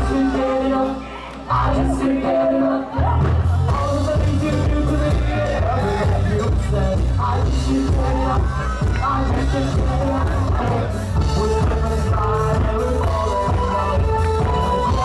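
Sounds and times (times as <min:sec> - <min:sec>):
person singing: 0:00.0 - 0:15.0
dance music with heavy bass: 0:02.8 - 0:15.0.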